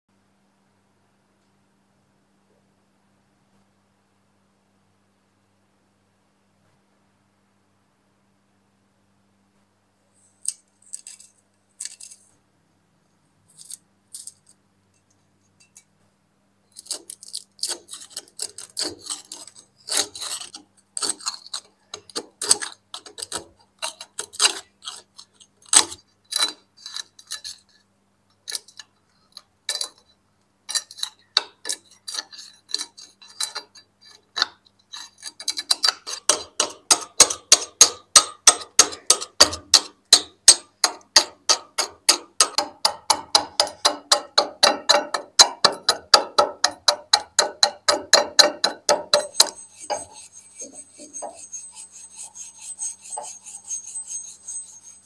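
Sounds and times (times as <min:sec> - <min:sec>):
scraper scraping rust off metal: 0:10.4 - 0:12.3, 0:16.7 - 0:27.8, 0:30.7 - 0:55.0.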